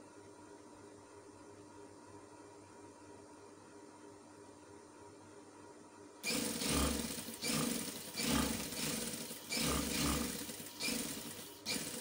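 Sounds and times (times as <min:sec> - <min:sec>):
sewing machine stitching: 0:06.2 - 0:12.0.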